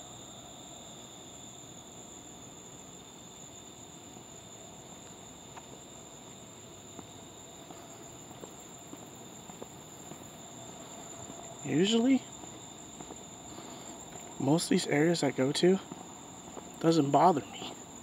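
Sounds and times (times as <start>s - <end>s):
night insects chorus: 0.0s - 18.0s.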